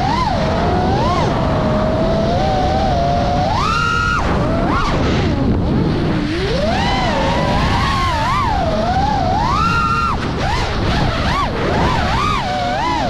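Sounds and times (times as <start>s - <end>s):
quadcopter motors whining: 0.0s - 13.0s
wind rush on microphone: 0.0s - 13.0s.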